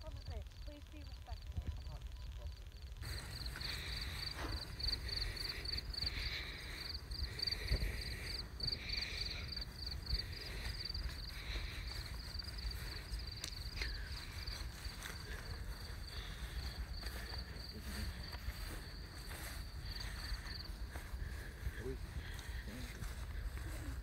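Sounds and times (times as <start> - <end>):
crickets chirping: 0.0 - 24.0.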